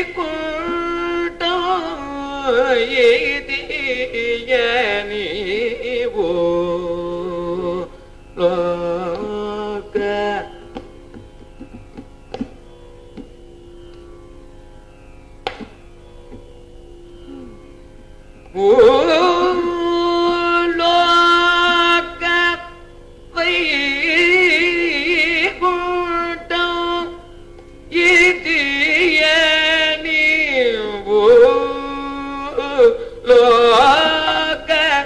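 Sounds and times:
man singing ornamented phrases: 0:00.0 - 0:10.9, 0:18.5 - 0:35.0
steady drone: 0:00.0 - 0:35.0
singer breathing: 0:07.9 - 0:08.2, 0:33.0 - 0:33.2.

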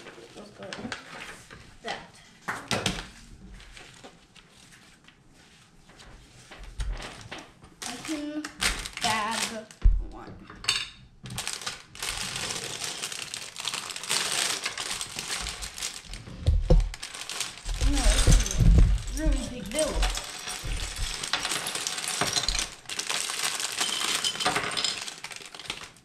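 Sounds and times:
plastic bag crinkling: 0:06.9 - 0:09.8, 0:11.3 - 0:26.0.

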